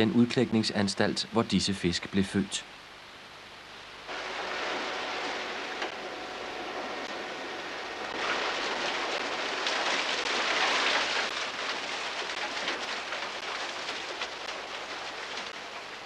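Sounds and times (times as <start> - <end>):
fish splashing: 4.1 - 16.0
water rushing and hissing: 4.1 - 16.0.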